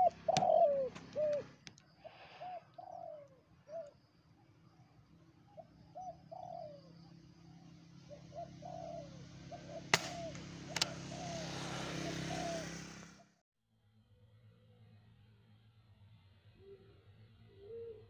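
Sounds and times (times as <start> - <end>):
doves cooing: 0.0 - 4.0, 5.3 - 12.9, 16.6 - 18.0
air rifle firing crack: 9.9 - 11.0
sharp click: 10.0 - 10.9.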